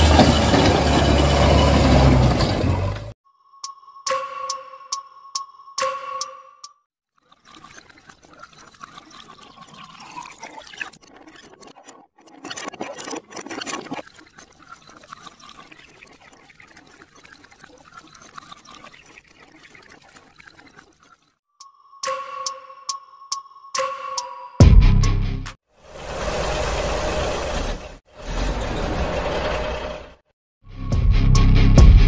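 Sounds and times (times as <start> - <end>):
liquid pouring and trickling: 7.2 - 21.4.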